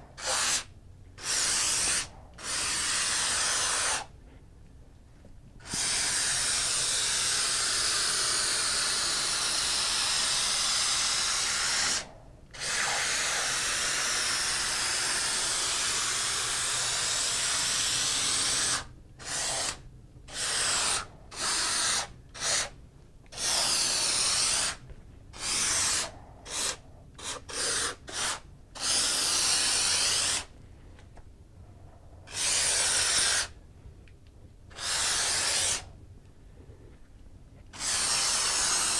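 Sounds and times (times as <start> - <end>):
spray foam gun hissing: 0.0 - 4.1, 5.6 - 22.7, 23.3 - 24.8, 25.4 - 30.5, 32.3 - 33.6, 34.7 - 35.9, 37.8 - 38.9.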